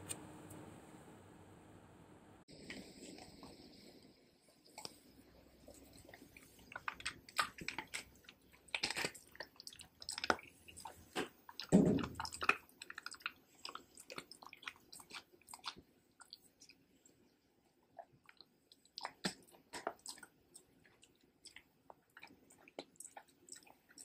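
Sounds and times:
dog licking and chewing: 0:04.7 - 0:17.2, 0:17.9 - 0:24.0.

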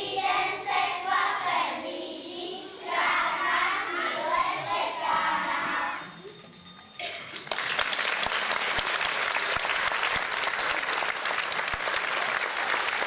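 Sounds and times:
high ringing tone: 0:06.0 - 0:07.5
audience applauding: 0:07.3 - 0:13.0.

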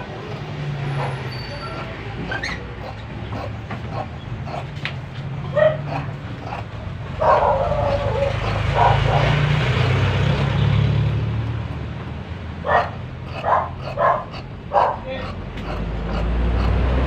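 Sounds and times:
vehicle engine hum passing: 0:00.0 - 0:17.0
dog barking: 0:00.8 - 0:04.8, 0:05.4 - 0:10.0, 0:12.6 - 0:17.0.

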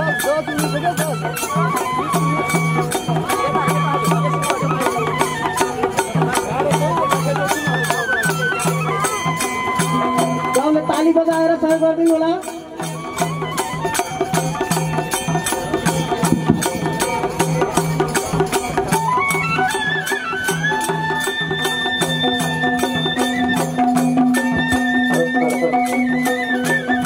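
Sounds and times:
folk melody instrument: 0:00.0 - 0:27.0
madal drum pattern: 0:00.0 - 0:27.0.

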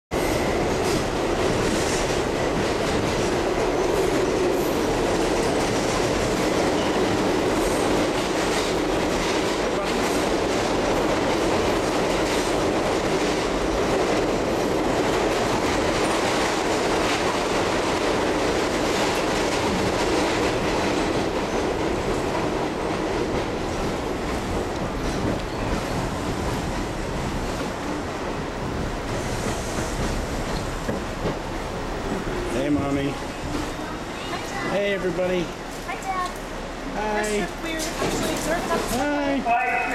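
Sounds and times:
train wheels rumbling on track: 0:00.1 - 0:39.9.

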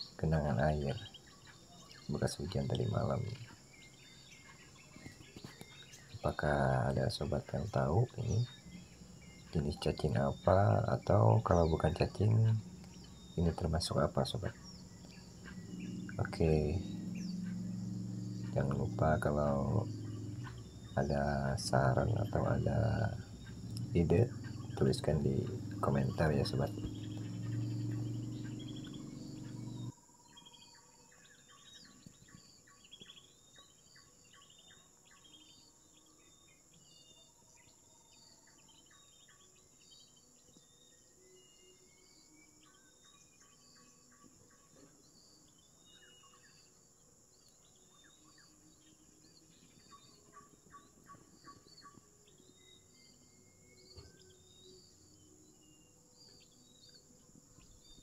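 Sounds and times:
bird chirps and trills: 0:00.0 - 0:58.0
insect drone: 0:00.0 - 0:58.0
low hum: 0:06.1 - 0:29.9.

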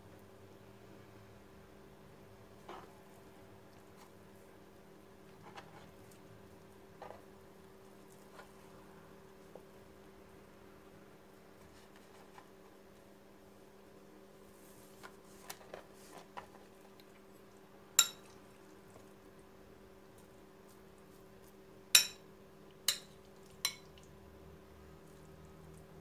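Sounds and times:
spoon clinking against glass bowl: 0:18.0 - 0:18.3, 0:22.0 - 0:22.2, 0:22.9 - 0:23.9.

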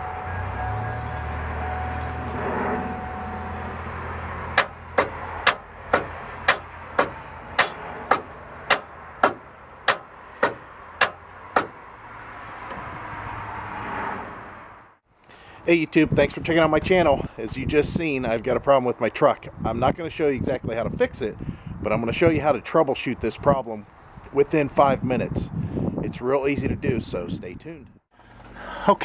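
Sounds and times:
truck starter clicking: 0:04.6 - 0:11.9.

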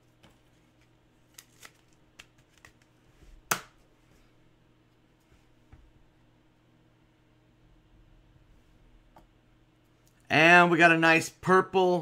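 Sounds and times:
cards ticking and scraping: 0:00.4 - 0:03.0.

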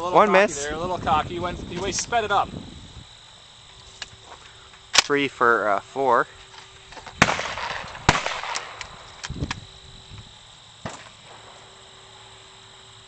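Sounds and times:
shotgun being loaded: 0:04.9 - 0:05.1
shotgun shots with echo: 0:07.2 - 0:08.8.

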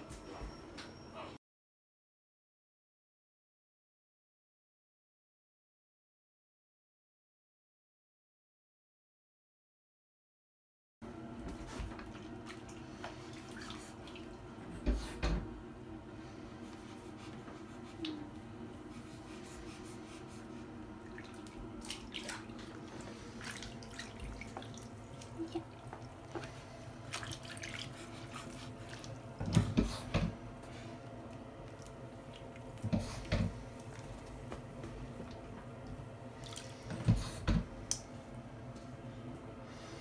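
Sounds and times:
faint steady hum: 0:11.1 - 0:40.0
bath water dripping and lapping: 0:11.4 - 0:15.3, 0:16.6 - 0:38.3
water splashes: 0:21.0 - 0:29.2, 0:36.4 - 0:37.0.

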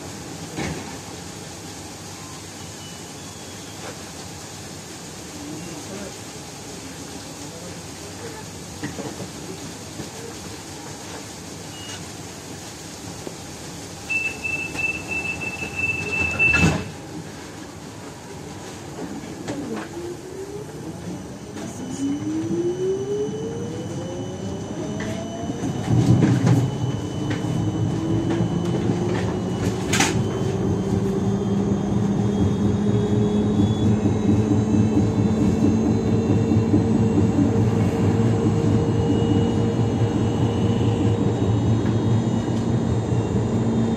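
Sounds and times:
tram running rumble: 0:13.8 - 0:43.9
door warning tone: 0:14.1 - 0:17.0, 0:21.3 - 0:43.9
tram doors shutting knock: 0:16.0 - 0:17.0
tram motor whine rising: 0:18.3 - 0:43.9.

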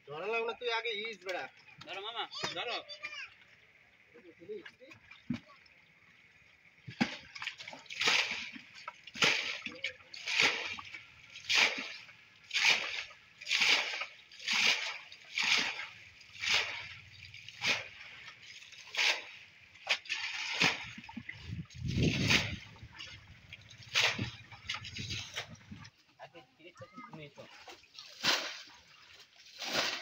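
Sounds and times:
water splashing from bucket: 0:04.6 - 0:26.0, 0:27.2 - 0:30.0
heavy water slosh: 0:06.9 - 0:25.9, 0:27.4 - 0:30.0.

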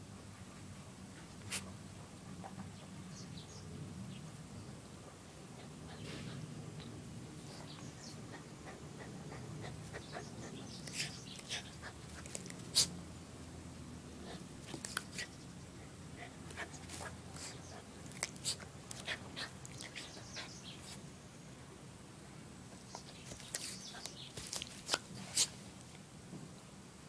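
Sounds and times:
dog snapping: 0:24.4 - 0:25.5.

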